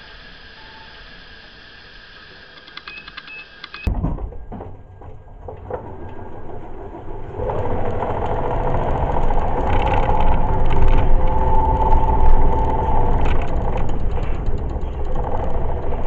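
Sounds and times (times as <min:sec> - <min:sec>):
mechanical whine: 0:00.0 - 0:16.0
low drivetrain rumble: 0:03.9 - 0:16.0.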